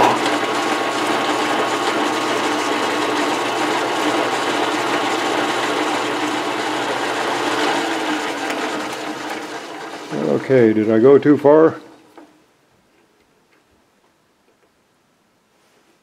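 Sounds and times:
metal lathe whine: 0.0s - 11.0s.

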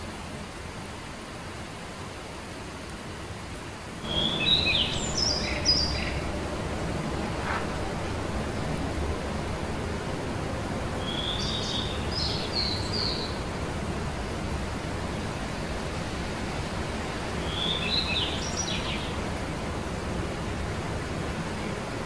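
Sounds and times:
steady background hiss: 0.0s - 22.0s
songbird chirping: 4.0s - 6.4s, 11.0s - 13.5s, 17.4s - 19.2s.

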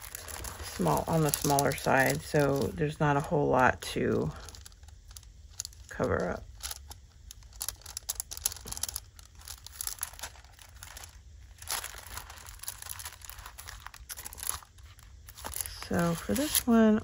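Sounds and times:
paper pages rustling: 0.0s - 2.8s, 8.3s - 16.9s.

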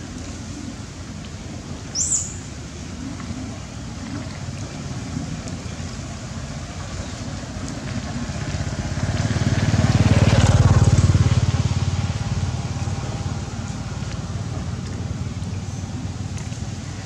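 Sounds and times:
vehicle engine passing by: 4.2s - 17.0s.

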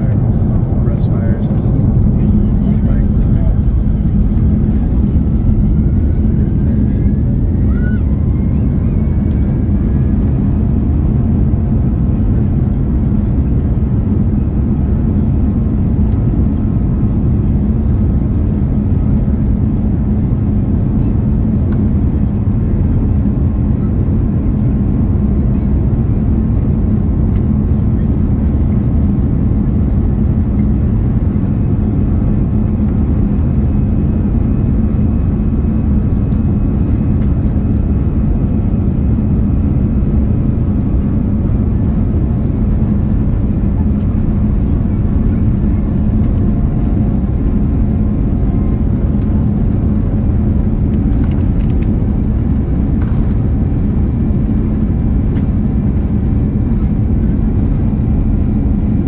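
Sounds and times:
faint rising whine: 0.0s - 10.2s
airliner cabin engine hum: 0.0s - 59.0s.

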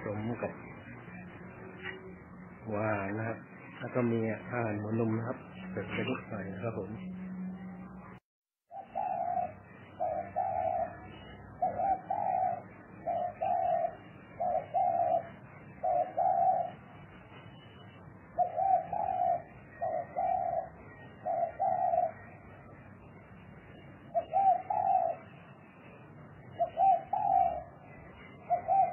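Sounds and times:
dove cooing: 8.7s - 16.8s, 18.4s - 22.5s, 24.1s - 25.4s, 26.5s - 28.9s.

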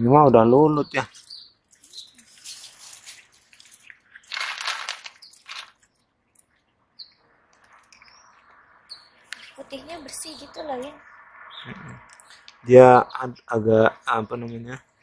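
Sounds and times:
faint bird chirps: 0.0s - 4.4s, 5.1s - 15.0s
cats crunching dry kibble: 1.8s - 6.5s.

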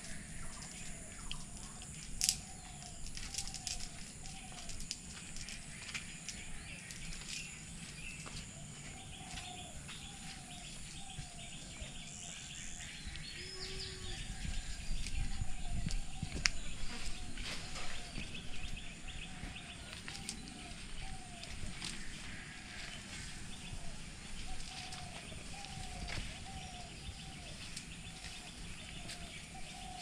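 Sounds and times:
faint high chirping and clicking: 0.0s - 16.7s.

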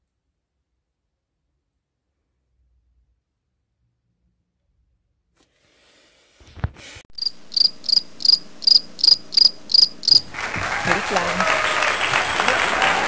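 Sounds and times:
cricket chirping: 7.2s - 10.3s.

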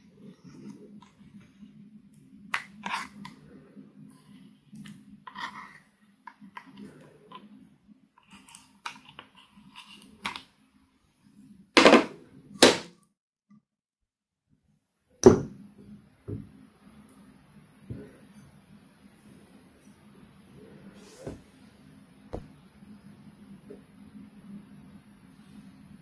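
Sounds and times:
plastic spatula scraping eyeshadow: 2.5s - 3.6s, 4.2s - 7.6s.

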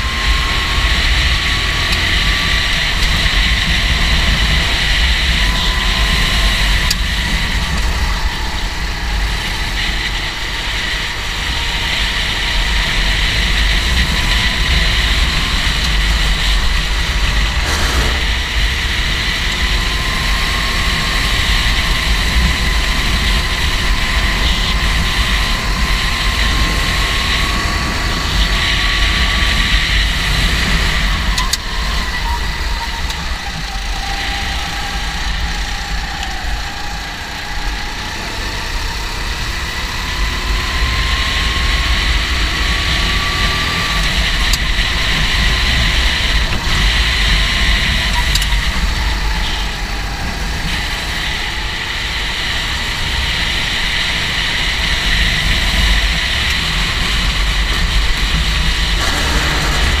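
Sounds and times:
go-kart engine running: 0.0s - 60.0s
steady low rumble: 12.8s - 20.3s, 55.0s - 60.0s.

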